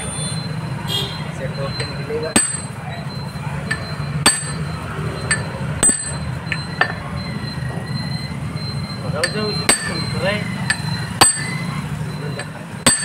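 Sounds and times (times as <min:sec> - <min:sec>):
hammer clanking on metal pipe: 0:01.8 - 0:02.8, 0:03.6 - 0:07.0, 0:09.2 - 0:11.7, 0:12.4 - 0:13.0.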